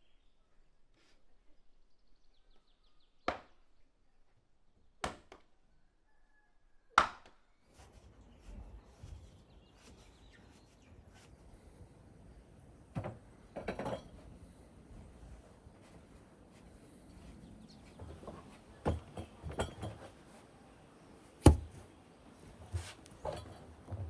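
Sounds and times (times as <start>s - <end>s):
axe chopping firewood: 5.0s - 5.4s, 21.4s - 21.7s.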